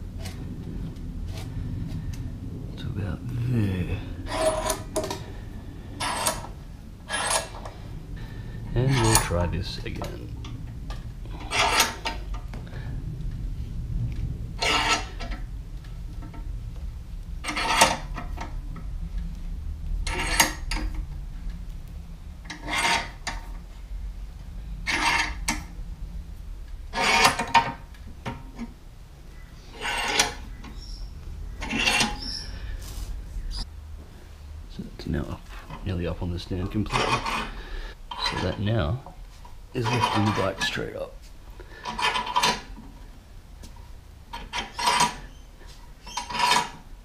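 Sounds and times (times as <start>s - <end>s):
scissor jack crank rasping: 4.3s - 4.8s, 7.1s - 7.6s, 11.4s - 12.1s, 14.6s - 15.1s, 17.5s - 18.0s, 22.5s - 23.3s, 24.9s - 25.5s, 26.9s - 27.5s, 29.7s - 30.4s, 31.6s - 32.4s, 41.8s - 42.7s, 44.4s - 45.3s, 46.0s - 46.8s.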